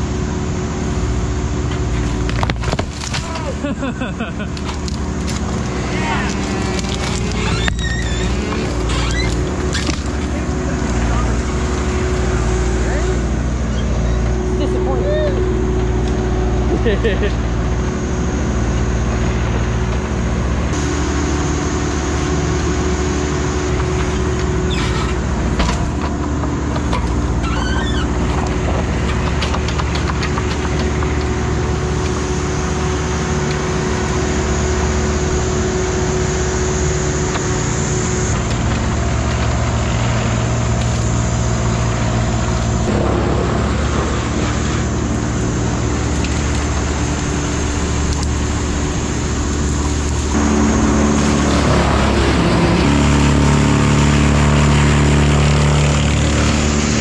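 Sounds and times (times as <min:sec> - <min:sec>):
excavator diesel engine running: 0:00.0 - 0:57.0
brush crackling: 0:01.6 - 0:17.9, 0:38.4 - 0:57.0.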